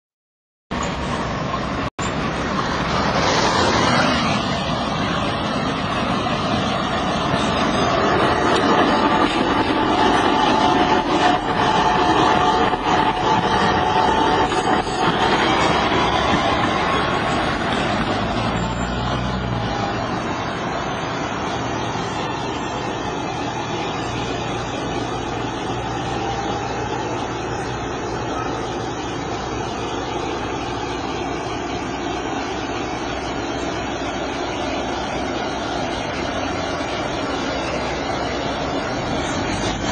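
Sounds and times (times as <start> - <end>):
city traffic roar: 0.7 - 39.9
tram passing: 0.7 - 39.9.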